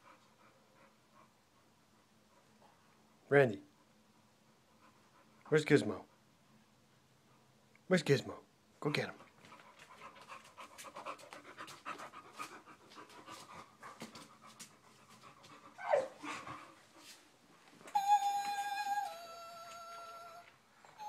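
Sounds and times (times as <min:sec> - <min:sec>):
dog panting rapidly: 0:09.2 - 0:17.3
dog whining: 0:15.8 - 0:16.4, 0:17.8 - 0:21.0
plush toy singing electronic notes: 0:18.0 - 0:20.4.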